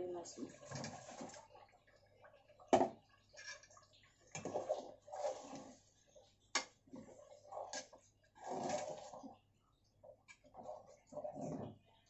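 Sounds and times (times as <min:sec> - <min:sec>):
spoon stirring in pot: 0:00.6 - 0:09.4.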